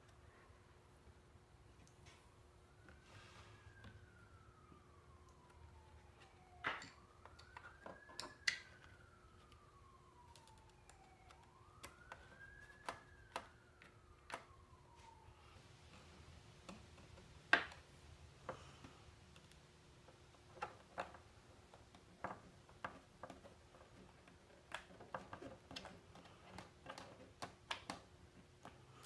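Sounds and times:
screwdriver clicks and taps: 0:06.7 - 0:09.6, 0:10.3 - 0:14.5.

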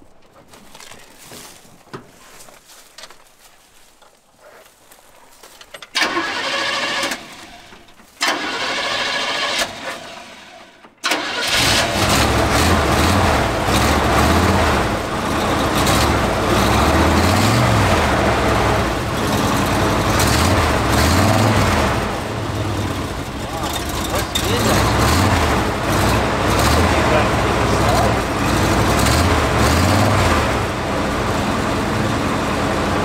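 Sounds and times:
engine cranking on starter: 0:05.7 - 0:30.8
engine running and revving: 0:11.3 - 0:33.0.

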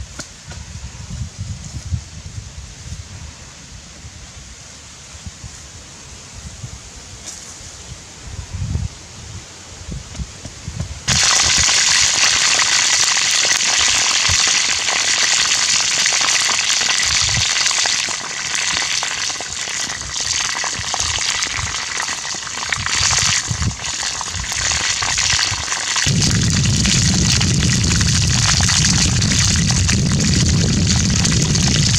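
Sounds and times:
chicken frying in hot oil: 0:11.1 - 0:31.9.

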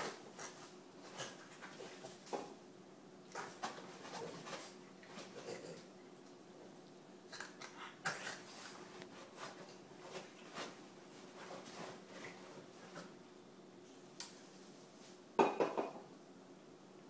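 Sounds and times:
dogs scuffling on fabric: 0:08.6 - 0:13.1.

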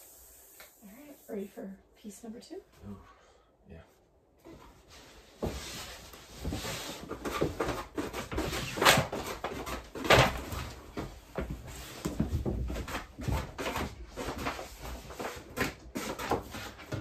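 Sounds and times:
wallpaper rustling and crinkling: 0:04.4 - 0:17.0.

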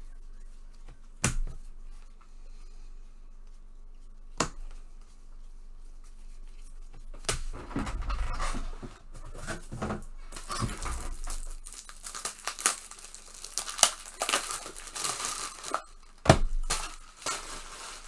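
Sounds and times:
card pack wrapper crinkling: 0:10.4 - 0:18.0.

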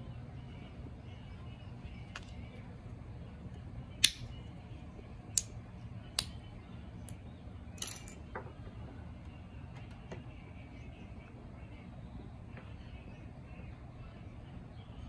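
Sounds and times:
vial cap clicks and snaps: 0:04.0 - 0:04.3.

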